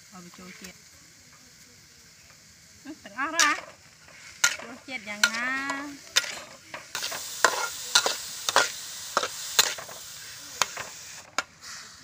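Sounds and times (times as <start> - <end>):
shrimp sizzling in a wok: 0.0 - 12.0
metal spatula scraping a pan: 3.3 - 10.0.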